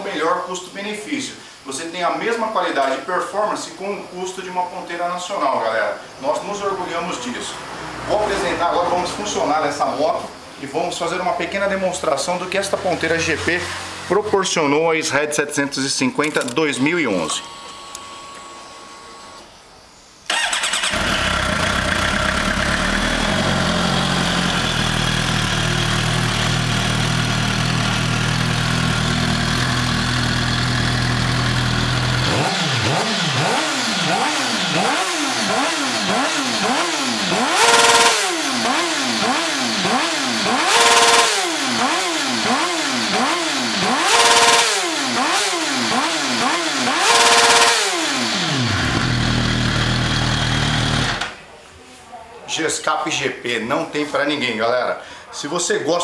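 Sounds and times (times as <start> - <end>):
motorcycle engine idling and revving: 12.6 - 14.3, 20.3 - 51.4
motorcycle engine starting: 20.3 - 51.4.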